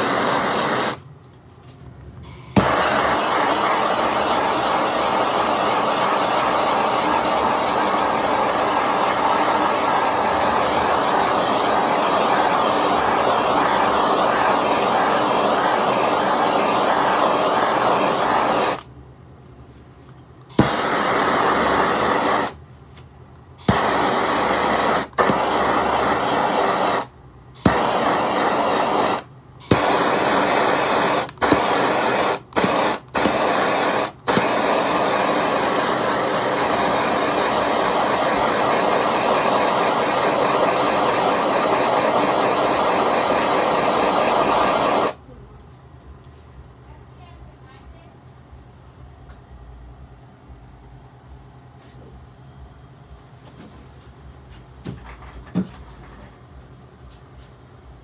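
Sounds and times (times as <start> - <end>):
butane torch hissing: 0.0 - 1.0, 2.2 - 18.9, 20.5 - 22.6, 23.6 - 45.2
sharp click of torch igniting: 0.0 - 1.1, 2.2 - 18.9, 20.5 - 22.6, 23.6 - 45.2.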